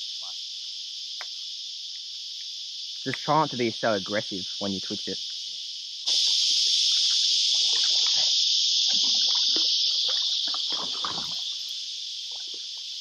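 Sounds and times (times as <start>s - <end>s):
cicada chorus droning: 0.0s - 13.0s
kayak paddle splashing: 7.5s - 8.3s, 8.9s - 11.7s.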